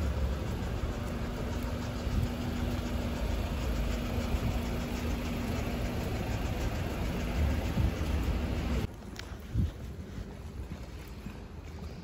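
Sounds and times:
steady hum: 0:00.0 - 0:09.0
vehicle engine rumble: 0:00.0 - 0:12.0.

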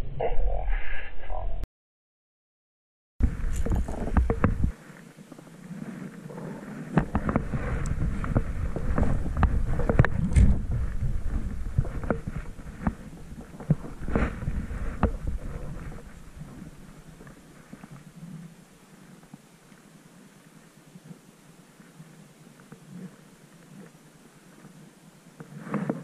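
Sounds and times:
wind buffeting microphone: 0:03.2 - 0:04.8, 0:07.0 - 0:17.5.

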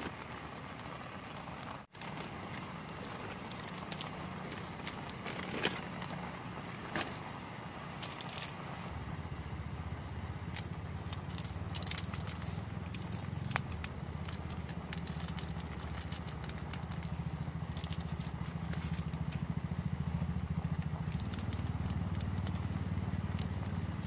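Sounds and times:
gas stove burning with rumbling hiss: 0:00.0 - 0:24.0
plastic sachets crinkling and tearing: 0:02.0 - 0:06.3, 0:08.0 - 0:08.8, 0:10.5 - 0:19.6, 0:20.6 - 0:24.0.

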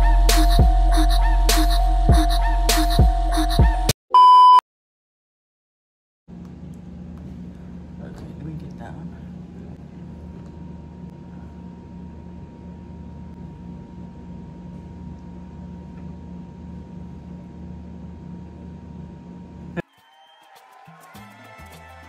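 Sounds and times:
steady mechanical hum: 0:06.3 - 0:19.8.

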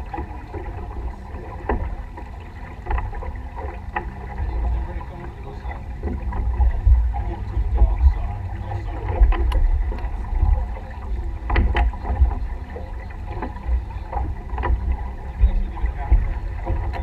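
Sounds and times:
water washing along hull: 0:00.0 - 0:17.0
wind buffeting microphone: 0:00.0 - 0:17.0.

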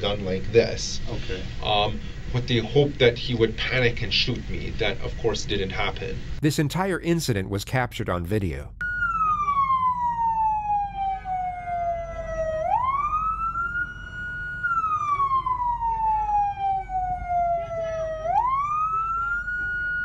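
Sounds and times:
low street rumble: 0:00.0 - 0:20.0
police siren wailing: 0:08.8 - 0:20.0.

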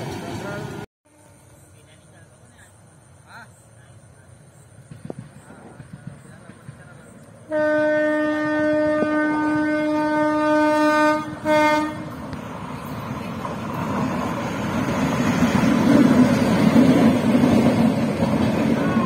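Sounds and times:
train rumble: 0:00.0 - 0:19.0
locomotive horn blasts: 0:07.5 - 0:12.2.

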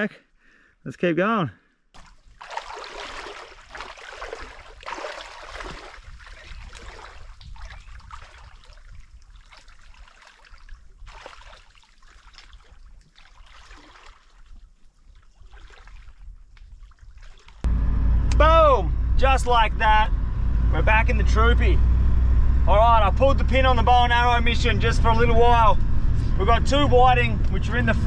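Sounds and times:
footsteps wading through water: 0:02.0 - 0:17.7.

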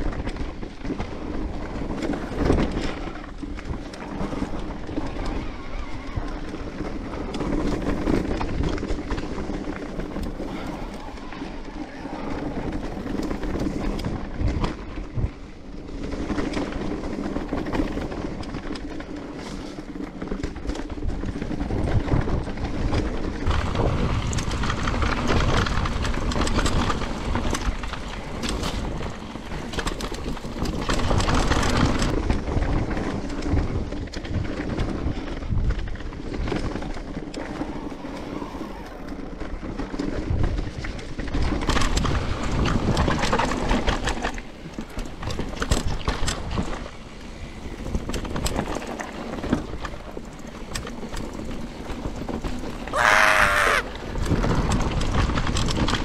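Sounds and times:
wind buffeting microphone: 0:00.0 - 0:56.0
tyres rumbling over dirt: 0:15.7 - 0:56.0.

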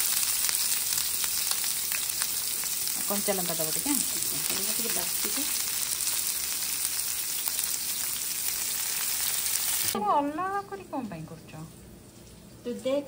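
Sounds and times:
onions sizzling in hot oil: 0:00.0 - 0:10.0.

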